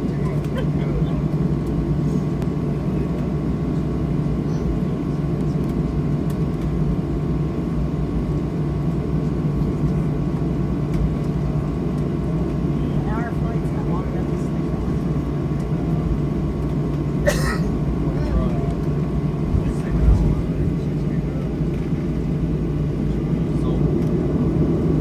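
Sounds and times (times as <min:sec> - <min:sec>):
jet engines rumbling: 0:00.0 - 0:25.0.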